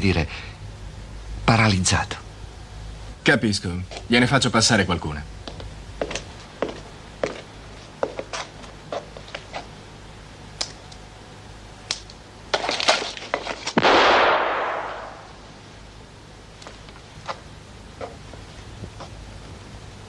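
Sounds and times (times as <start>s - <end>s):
reverberant gunshot: 13.8s - 15.4s.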